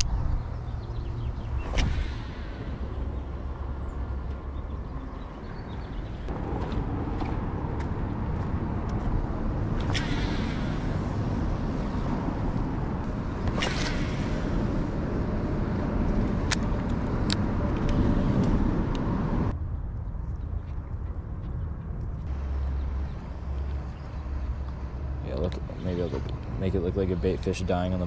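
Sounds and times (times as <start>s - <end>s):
low wind rumble on microphone: 0.0s - 28.0s
fishing rod swish: 1.5s - 3.7s, 9.7s - 12.1s, 13.4s - 15.2s.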